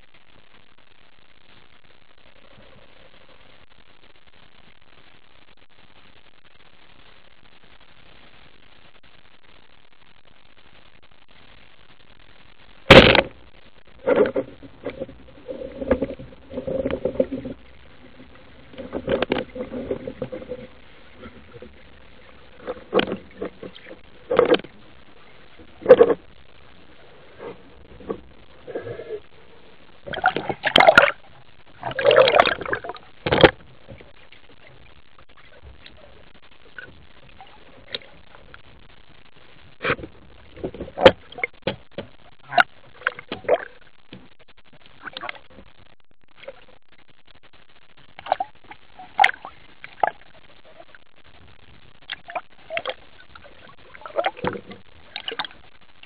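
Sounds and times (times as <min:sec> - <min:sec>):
muffled underwater knocks and rattles: 0:12.9 - 0:26.7, 0:27.4 - 0:29.0, 0:30.1 - 0:45.8, 0:51.5 - 0:55.7.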